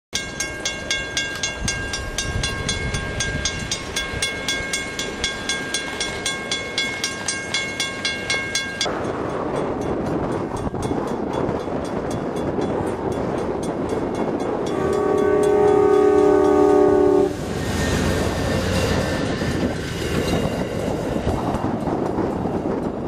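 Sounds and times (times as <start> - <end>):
railroad crossing bell ringing: 0.2 - 22.8
steady rushing noise: 0.7 - 23.0.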